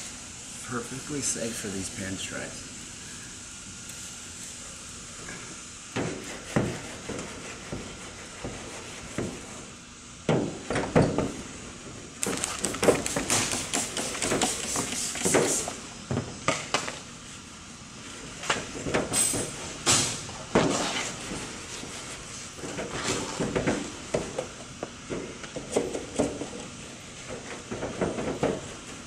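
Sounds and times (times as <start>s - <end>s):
clay bar rubbing on car panel: 6.0s - 9.7s, 12.8s - 15.7s.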